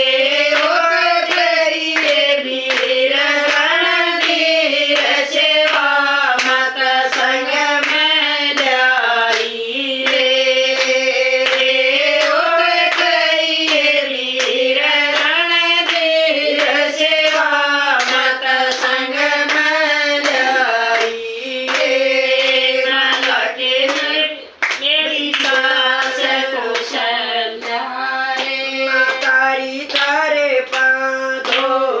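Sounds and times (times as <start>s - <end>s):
hand claps: 0.0s - 32.0s
women singing devotional song: 0.0s - 32.0s.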